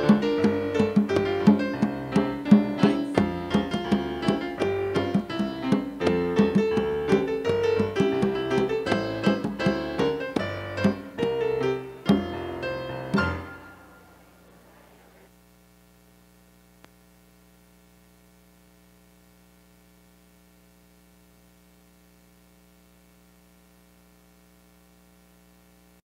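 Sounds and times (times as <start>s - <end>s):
piano chord: 0.0s - 14.6s
low electrical hum: 0.0s - 26.0s
faint click: 16.8s - 17.0s.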